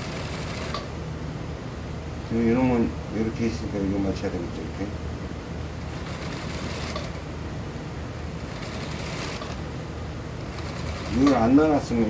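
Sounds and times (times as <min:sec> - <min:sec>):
sewing machine running: 0:00.0 - 0:00.9, 0:05.8 - 0:07.2, 0:08.4 - 0:09.6, 0:10.4 - 0:11.9.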